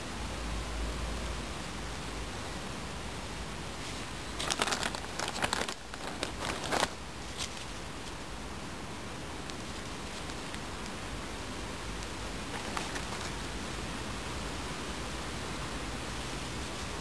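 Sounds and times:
steady hiss: 0.0 - 17.0
plastic sheeting crinkling: 3.8 - 8.2, 9.5 - 10.7, 12.4 - 13.5.

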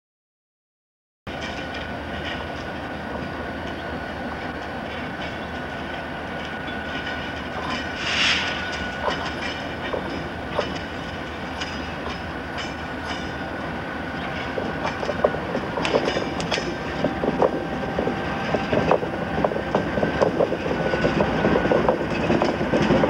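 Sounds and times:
diesel locomotive engines running: 1.3 - 23.0
wheels clicking over rail joints: 1.3 - 23.0
short hiss: 8.0 - 8.9.

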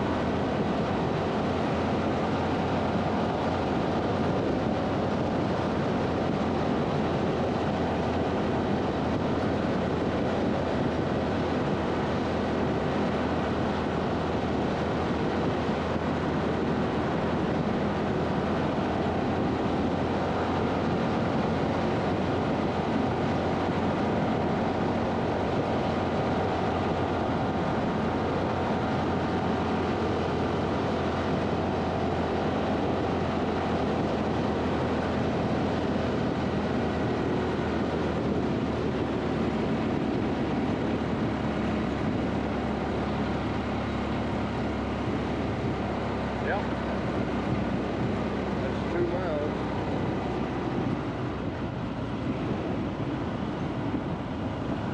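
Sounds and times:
motorcycle engine cruising: 0.0 - 54.9.

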